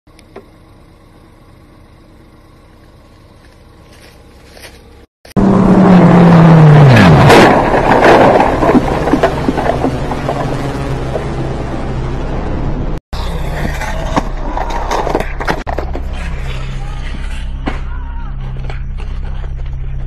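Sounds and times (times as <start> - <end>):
low engine hum: 0.1 - 20.0
motorcycle engine revving: 5.3 - 13.5
motorcycle scraping and clattering: 7.2 - 11.4, 13.4 - 17.3.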